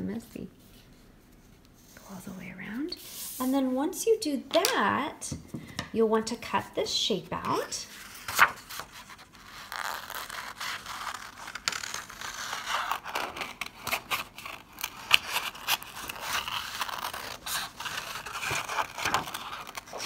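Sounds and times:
paper rustling: 7.4s - 20.0s.

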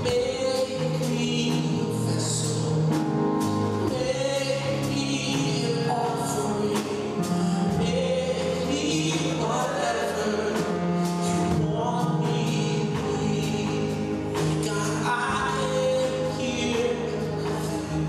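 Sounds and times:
choir singing gospel in harmony: 0.0s - 18.0s
instrumental backing with beat: 0.0s - 18.0s.

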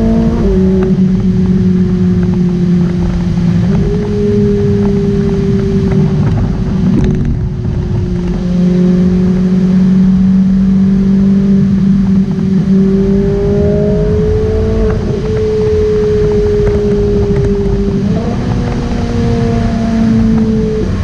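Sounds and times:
car engine cruising: 0.0s - 21.0s
road and wind noise: 0.0s - 21.0s.

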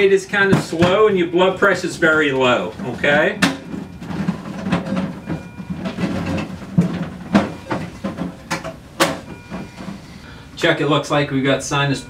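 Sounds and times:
rustling of cable and bedding: 0.0s - 10.2s
clicks and knocks: 2.4s - 10.0s.

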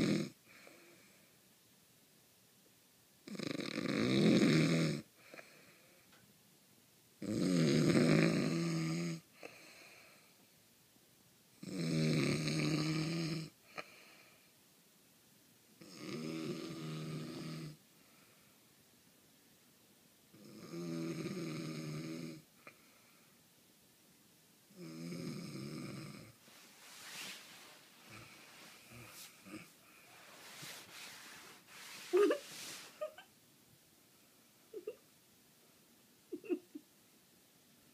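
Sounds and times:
man snoring loudly: 0.0s - 0.4s, 3.3s - 5.0s, 7.2s - 9.2s, 11.6s - 13.5s, 15.8s - 17.8s, 20.4s - 22.4s, 24.8s - 26.4s.

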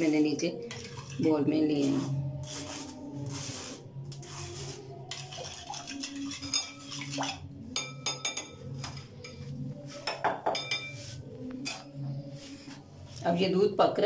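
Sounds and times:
spoon clinking against glass bowl: 5.1s - 11.0s.

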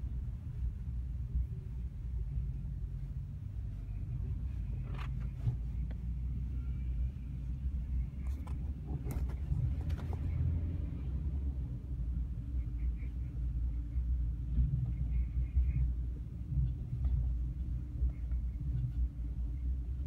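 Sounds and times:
car interior road rumble: 0.0s - 20.0s.

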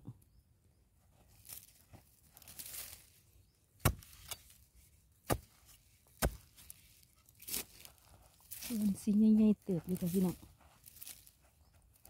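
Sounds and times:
hands rustling in soil: 0.8s - 12.0s
spade chopping stony soil: 3.8s - 4.6s, 5.2s - 6.8s, 7.4s - 7.9s.

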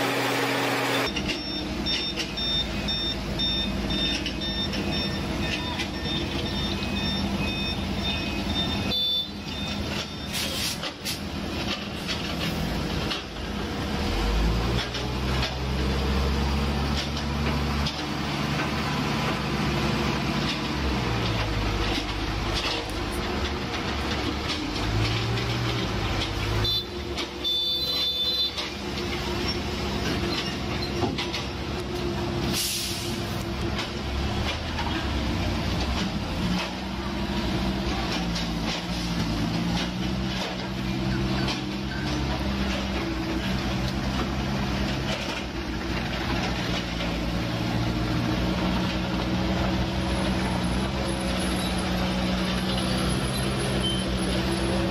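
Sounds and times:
diesel engines of machinery running: 0.0s - 54.9s
skid-steer loader revving: 0.0s - 54.9s
reversing beeps: 1.0s - 10.6s, 26.6s - 28.6s, 53.3s - 54.2s.

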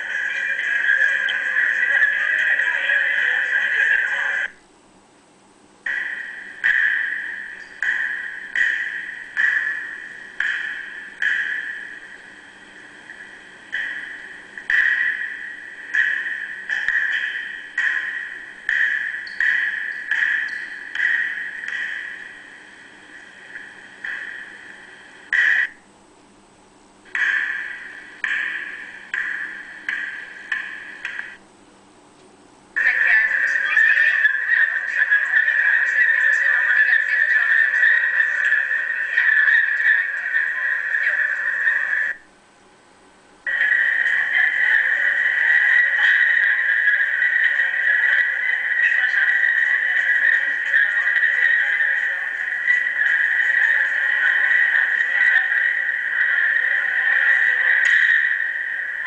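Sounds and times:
high-pitched ringing strikes: 5.8s - 25.8s, 27.1s - 31.4s.

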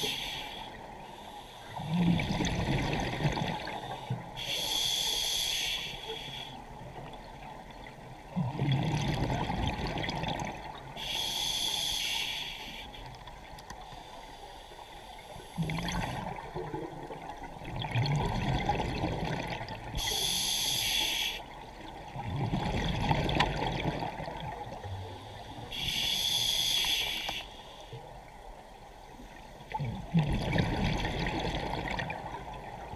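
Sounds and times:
bubbles gurgling: 1.9s - 3.8s, 8.4s - 10.7s, 15.6s - 19.9s, 22.1s - 24.8s, 29.8s - 32.9s
regulator inhalation hissing: 4.4s - 6.6s, 11.0s - 13.0s, 20.0s - 21.5s, 25.7s - 27.8s.

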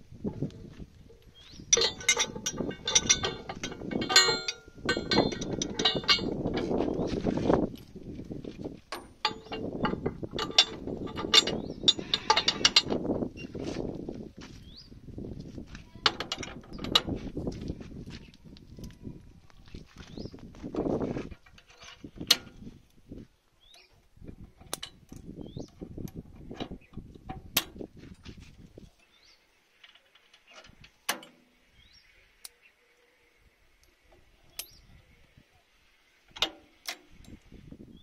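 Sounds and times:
rubbing handling noise: 0.0s - 14.8s
metal pins clinking: 0.2s - 13.6s, 16.0s - 17.2s, 36.3s - 37.4s.

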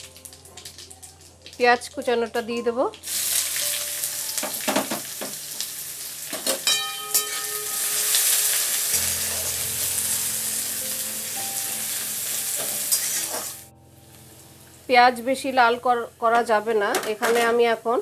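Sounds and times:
onions sizzling in oil: 0.0s - 18.0s
spatula scraping metal pan: 12.7s - 13.6s.

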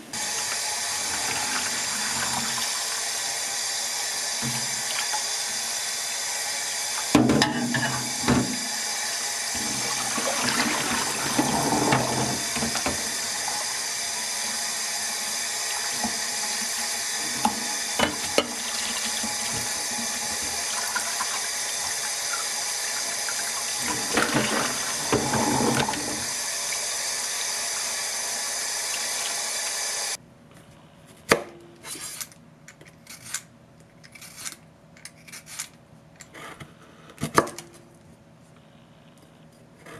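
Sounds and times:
tap water running into sink: 0.2s - 3.4s, 4.4s - 5.6s, 9.5s - 29.9s.

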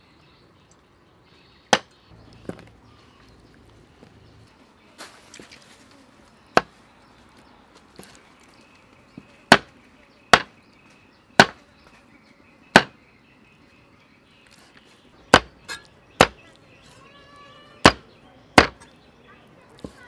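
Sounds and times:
cleaver chopping on wooden block: 9.5s - 9.7s, 10.3s - 10.5s, 11.4s - 11.6s, 12.8s - 13.0s, 15.3s - 16.4s, 17.8s - 18.0s, 18.6s - 18.8s.

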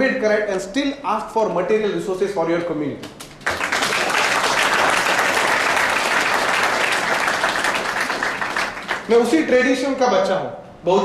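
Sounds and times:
audience applauding: 3.4s - 9.3s.

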